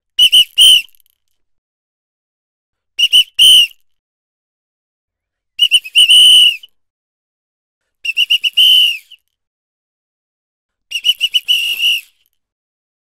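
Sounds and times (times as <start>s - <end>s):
pea whistle toots and blasts: 0.2s - 1.0s, 3.0s - 3.8s, 5.6s - 6.8s, 8.0s - 9.2s, 10.9s - 12.3s.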